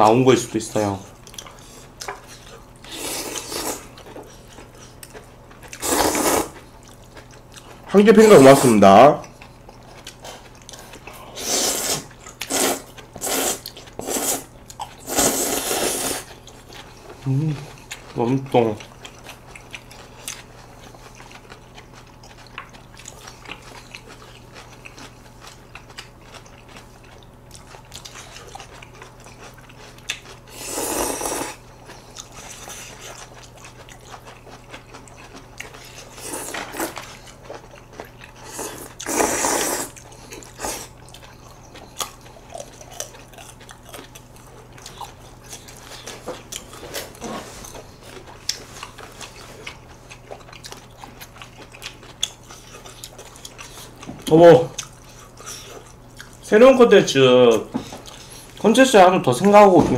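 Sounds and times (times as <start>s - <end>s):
chewing noodles: 1.1s - 8.6s, 9.2s - 56.5s, 57.5s - 58.8s.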